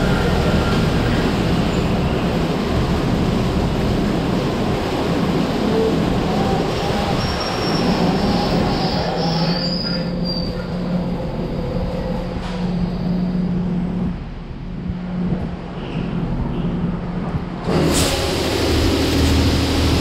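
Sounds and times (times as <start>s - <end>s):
car wash machinery rushing: 0.0s - 9.3s, 17.6s - 20.0s.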